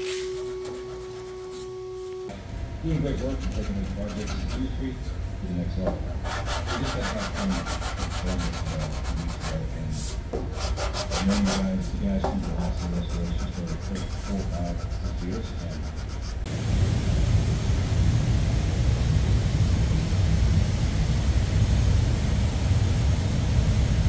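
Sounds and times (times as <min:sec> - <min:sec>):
sanding block rubbing on metal: 0:03.2 - 0:04.8, 0:06.2 - 0:09.7, 0:10.6 - 0:11.8, 0:12.4 - 0:16.5.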